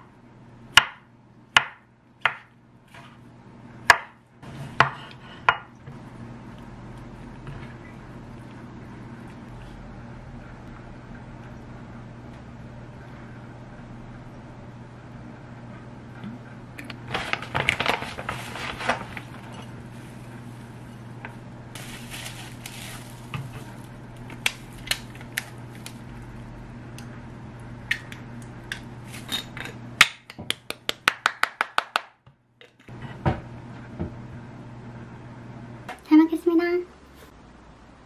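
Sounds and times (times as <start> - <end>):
steady low hum: 0.0 - 31.1
plastic packaging crinkling: 17.1 - 20.3, 21.8 - 26.1.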